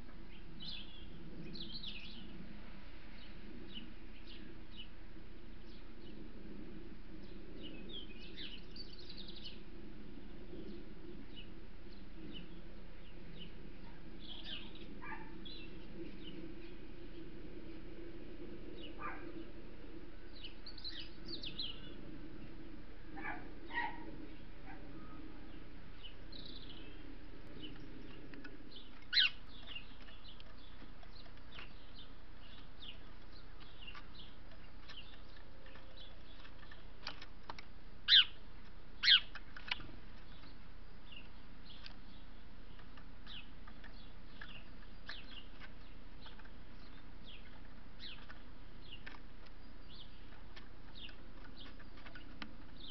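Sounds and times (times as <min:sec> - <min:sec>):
small songbird chirping: 0:00.0 - 0:52.9.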